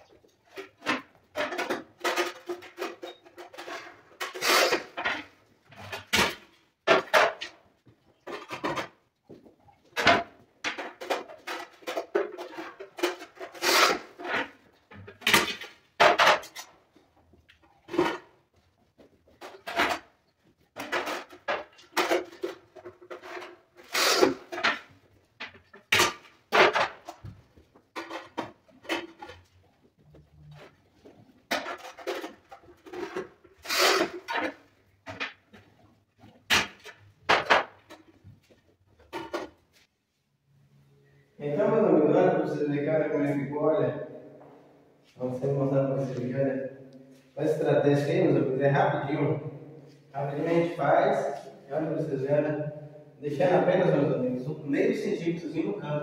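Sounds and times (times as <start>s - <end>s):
tile cutter scraping: 1.4s - 5.1s, 10.8s - 14.5s, 23.1s - 24.8s, 31.5s - 34.5s.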